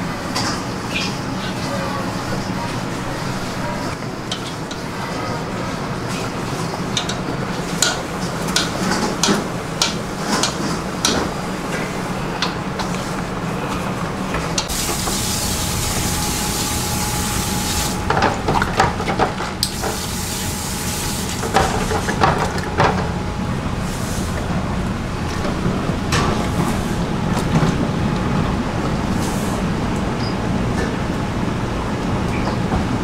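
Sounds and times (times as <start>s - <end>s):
steady low hum: 0.0s - 33.0s
hiss: 14.7s - 18.0s.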